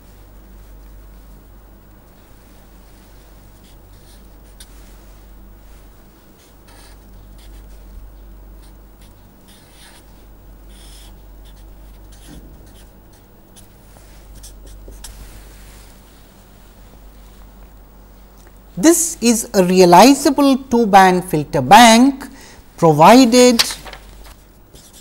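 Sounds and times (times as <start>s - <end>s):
low electrical hum: 0.0s - 25.0s
marker scratching on paper: 6.4s - 7.8s, 8.6s - 15.8s, 24.7s - 25.0s.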